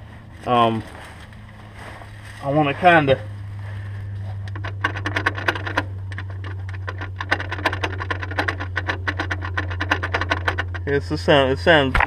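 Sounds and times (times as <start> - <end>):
steady low hum: 0.0 - 12.0
rapid irregular clicking of shaft: 4.4 - 10.9.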